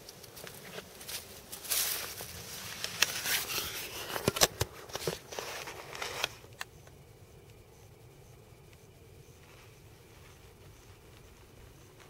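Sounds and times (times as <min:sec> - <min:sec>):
footsteps crunching dry leaves: 0:00.4 - 0:03.9.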